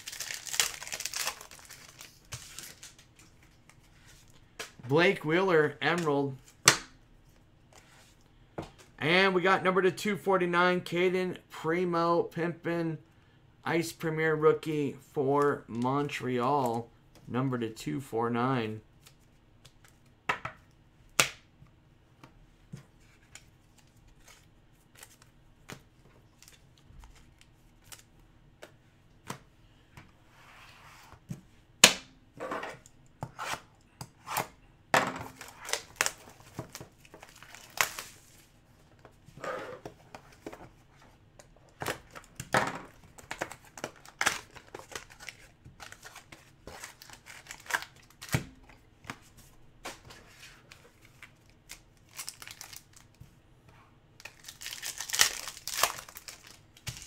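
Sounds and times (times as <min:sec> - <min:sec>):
wrap and cardboard crinkling: 0:00.0 - 0:04.4, 0:35.3 - 0:39.2, 0:43.0 - 0:48.3, 0:50.4 - 0:53.2, 0:54.2 - 0:57.0.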